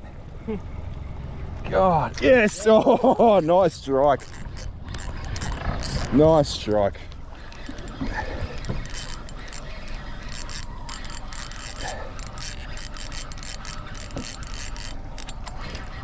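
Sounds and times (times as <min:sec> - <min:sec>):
fishing reel clicking: 0:03.4 - 0:16.0.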